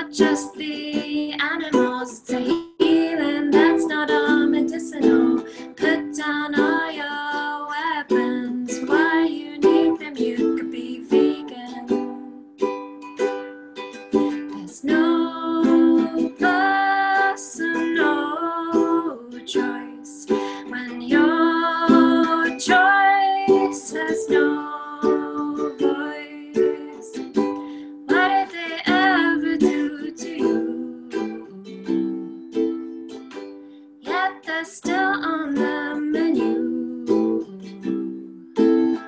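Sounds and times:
woman singing: 0:00.0 - 0:12.6, 0:14.2 - 0:32.4, 0:34.0 - 0:39.0
ukulele strumming chords: 0:00.0 - 0:39.0.

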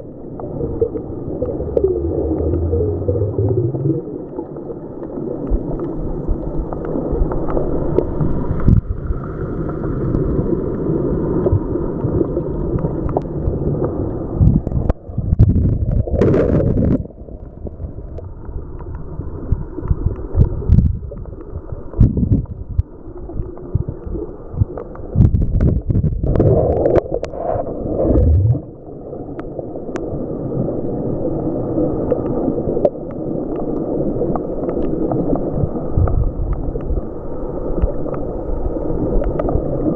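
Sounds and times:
muffled underwater wave surge: 0:00.5 - 0:04.3, 0:24.6 - 0:28.9.

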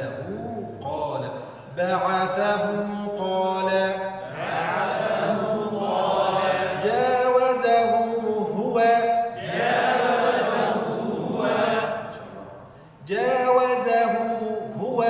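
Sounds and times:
voices chanting together: 0:04.2 - 0:07.4, 0:09.3 - 0:12.6.

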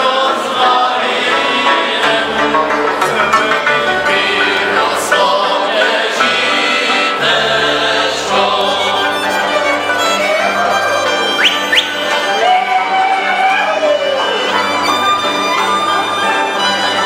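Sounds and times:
voices singing along: 0:00.0 - 0:10.7
folk band playing dance tune: 0:00.0 - 0:17.0.

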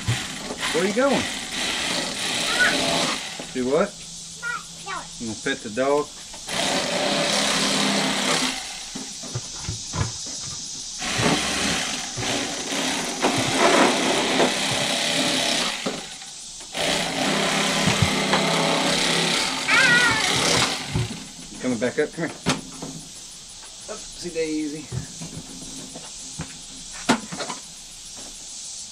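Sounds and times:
electric knife motor running: 0:00.0 - 0:03.9, 0:06.5 - 0:09.0, 0:11.0 - 0:21.3.

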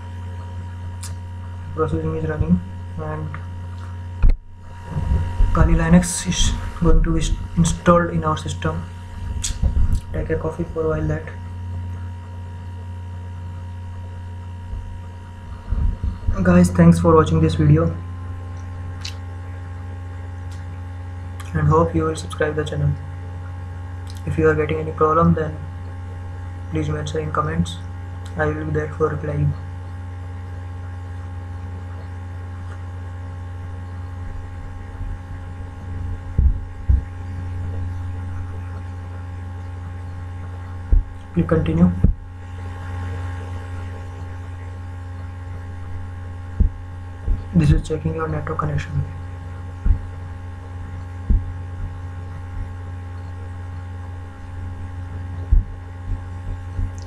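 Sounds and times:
electrical mains hum: 0:00.0 - 0:57.0
dull low thumps: 0:04.2 - 0:11.9, 0:13.8 - 0:16.7, 0:33.4 - 0:39.1, 0:39.8 - 0:43.2, 0:43.8 - 0:57.0.

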